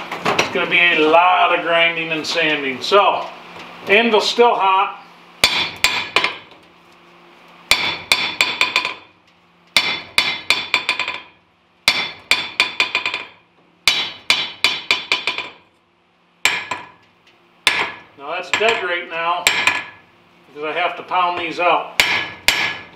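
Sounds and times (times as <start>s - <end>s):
hammer ringing on steel anvil: 7.7s - 9.0s, 11.9s - 13.3s, 17.7s - 20.0s, 22.0s - 22.9s.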